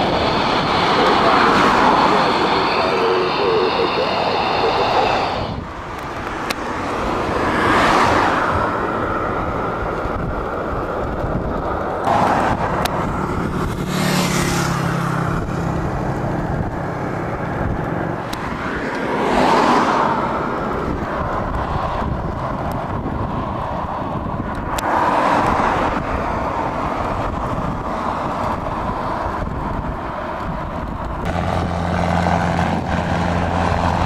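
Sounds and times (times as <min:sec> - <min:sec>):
cars passing by: 0:00.0 - 0:34.0.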